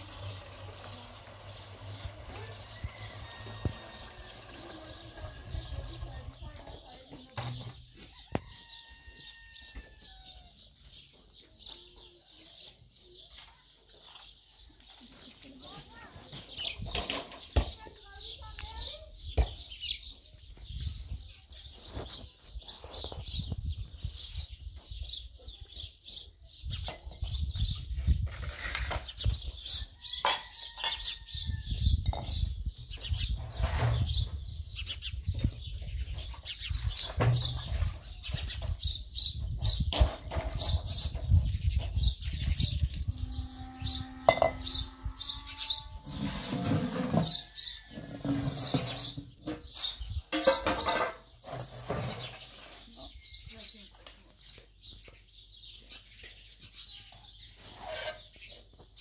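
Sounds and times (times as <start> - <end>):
small birds chirping: 0.0 - 46.0, 47.1 - 59.0.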